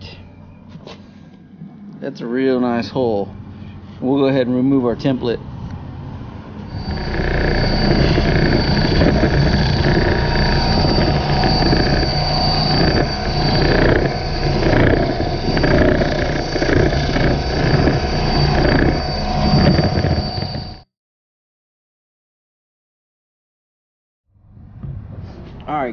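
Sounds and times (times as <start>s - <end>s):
belt sander whining: 0.0s - 20.8s
wood grinding against belt: 6.7s - 20.8s.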